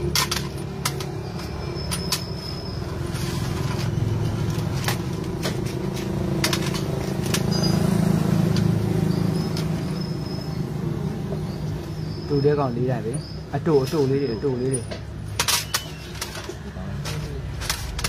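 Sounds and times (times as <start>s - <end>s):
metal parts clicking: 0.0s - 7.9s, 14.7s - 18.0s.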